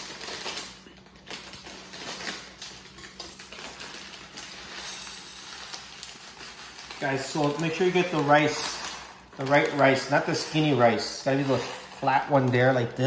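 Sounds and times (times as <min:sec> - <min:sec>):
plastic bag crinkling: 0:00.0 - 0:13.0.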